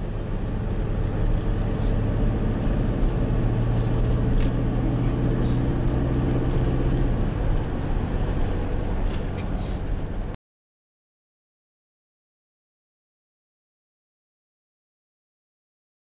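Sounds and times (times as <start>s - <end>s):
car engine hum: 0.0s - 10.4s
road noise: 0.0s - 10.4s.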